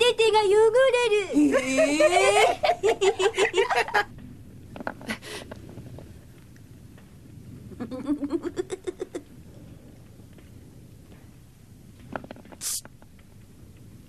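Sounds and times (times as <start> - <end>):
boys snickering and giggling: 1.3 - 4.1, 7.9 - 9.3.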